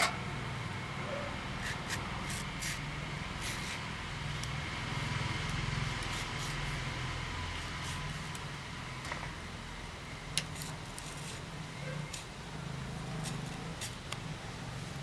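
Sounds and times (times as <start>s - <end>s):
knife cutting raw mango: 1.6s - 4.6s, 5.4s - 7.0s.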